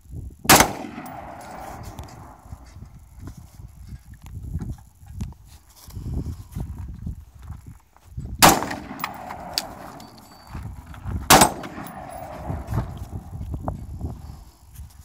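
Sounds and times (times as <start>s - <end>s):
rifle shots with echo: 0.5s - 2.8s, 8.4s - 13.3s.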